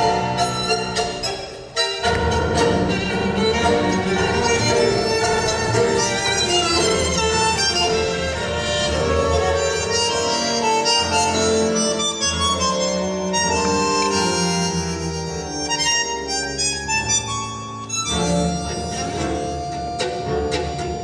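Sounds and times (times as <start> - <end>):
bandoneon melody: 0.0 - 21.0
tango orchestra music: 0.0 - 21.0.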